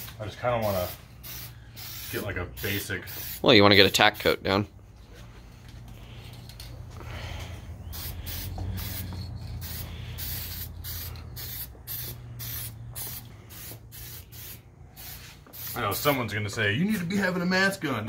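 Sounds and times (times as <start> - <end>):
spray can hissing bursts: 0.0 - 3.4, 7.9 - 16.2.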